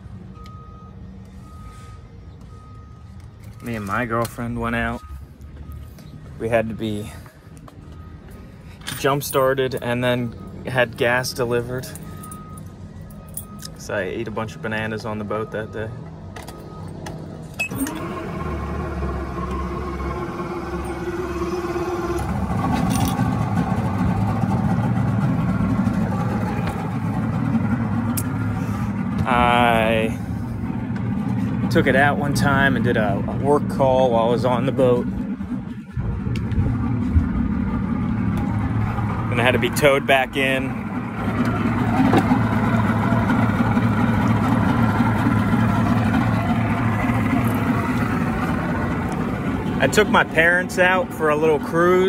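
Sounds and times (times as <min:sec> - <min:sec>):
outboard motor running: 0:17.6 - 0:52.0.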